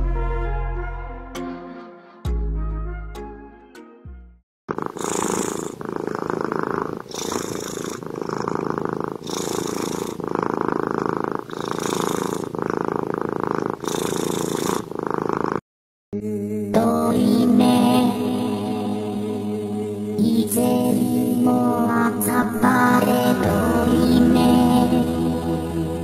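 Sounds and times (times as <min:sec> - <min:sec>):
cat purring: 0:04.7 - 0:15.6.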